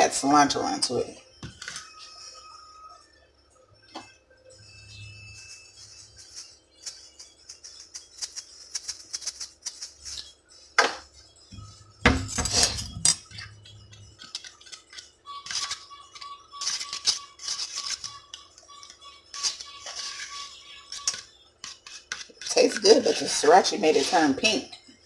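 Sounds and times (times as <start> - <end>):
utensil clinking and scraping in bowl: 19.4 - 24.8.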